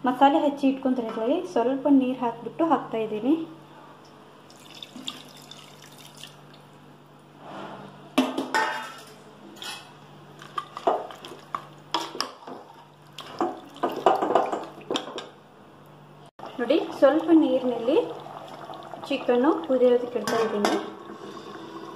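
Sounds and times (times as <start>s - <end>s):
water pouring into pot: 4.5s - 6.6s, 16.4s - 20.1s.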